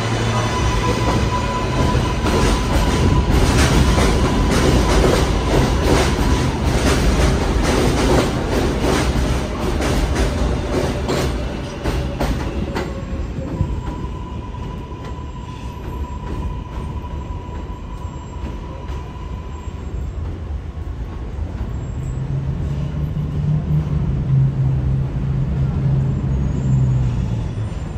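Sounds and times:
train clattering over rail joints: 0:00.0 - 0:19.1
approaching train hum: 0:00.0 - 0:27.9.

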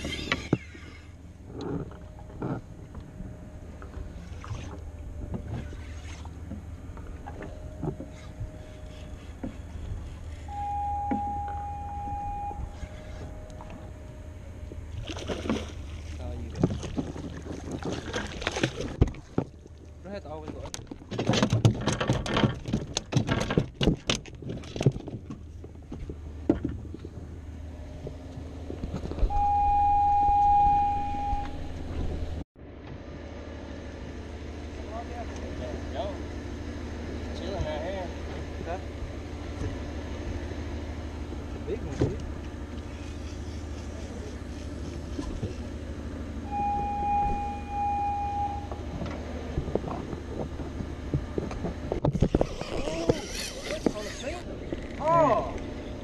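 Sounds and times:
boat engine idling: 0:00.0 - 0:21.1, 0:33.2 - 0:52.1, 0:52.8 - 0:56.0
high beep: 0:10.5 - 0:13.5, 0:29.3 - 0:31.7, 0:46.5 - 0:48.8.

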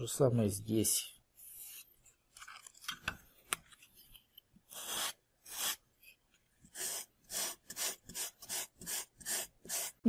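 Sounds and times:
sandpaper rubbing on foam: 0:04.7 - 0:05.8, 0:06.7 - 0:10.0.

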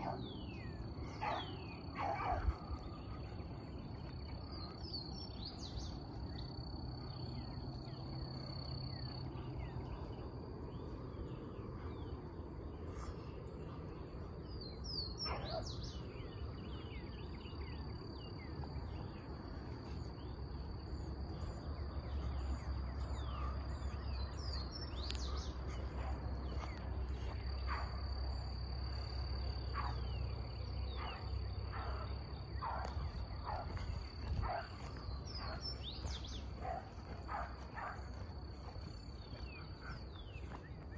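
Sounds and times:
birds chirping and calling: 0:00.0 - 0:40.9.

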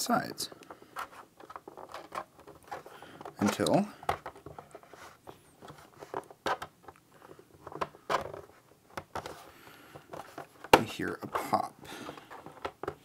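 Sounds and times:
screwdriver scraping plastic case: 0:00.5 - 0:06.6.

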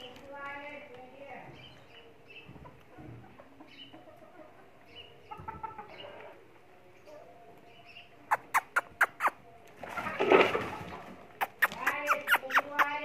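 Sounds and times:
hens clucking: 0:02.5 - 0:06.5, 0:08.3 - 0:13.0.

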